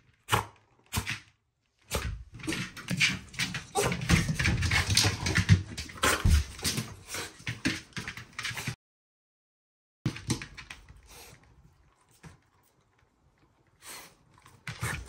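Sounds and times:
dog claws clattering on wooden floor: 0:02.4 - 0:08.7.

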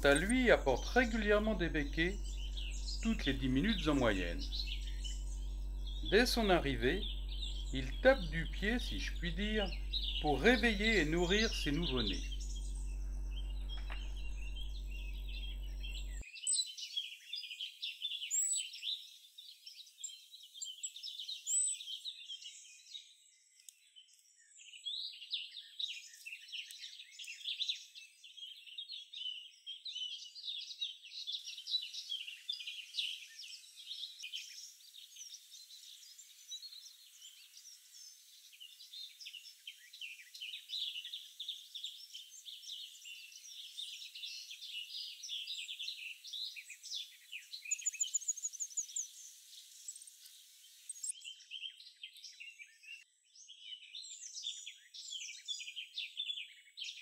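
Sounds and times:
low steady hum: 0:00.0 - 0:16.2
nestlings cheeping: 0:00.0 - 0:16.2.

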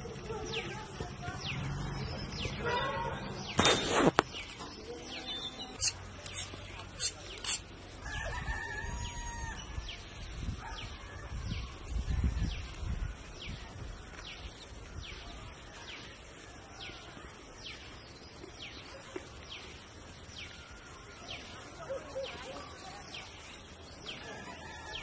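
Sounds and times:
rooster crowing: 0:08.0 - 0:09.8, 0:24.3 - 0:25.0.

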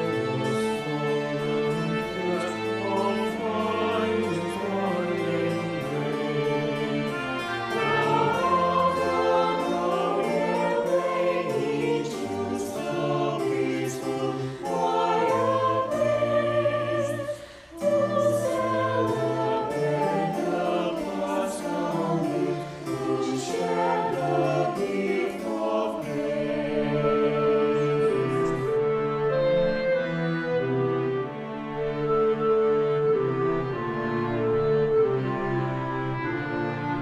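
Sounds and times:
mixed choir singing: 0:00.0 - 0:37.0.

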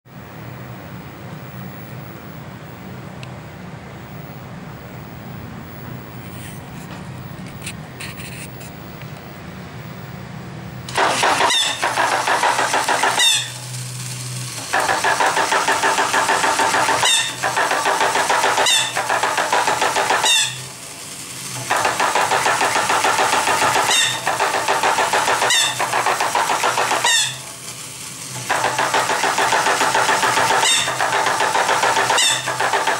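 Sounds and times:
sharp toy clicks: 0:10.9 - 0:32.9
toy motor hum: 0:10.9 - 0:32.9.

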